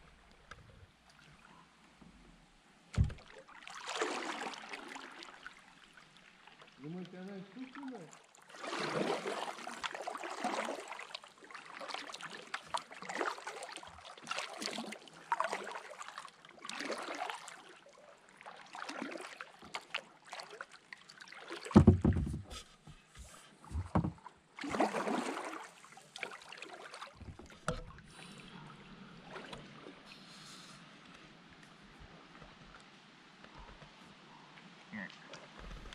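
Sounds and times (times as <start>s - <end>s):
paddle strokes swishing through water: 0.0s - 35.9s.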